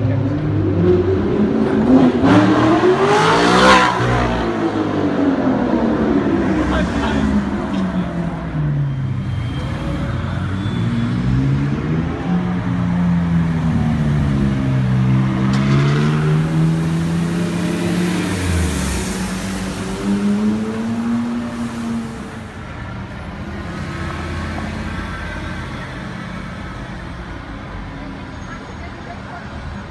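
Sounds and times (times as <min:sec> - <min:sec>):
car engine revving and accelerating: 0:00.0 - 0:08.7, 0:09.9 - 0:22.5.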